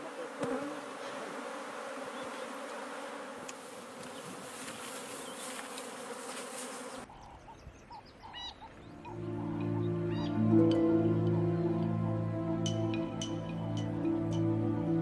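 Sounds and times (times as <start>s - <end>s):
honeybees buzzing: 0.0s - 7.1s.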